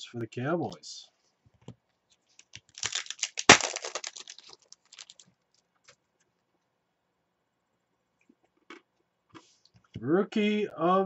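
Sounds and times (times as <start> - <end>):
trading cards clicking and rustling: 2.4 - 5.2
card snapping: 2.8 - 5.2.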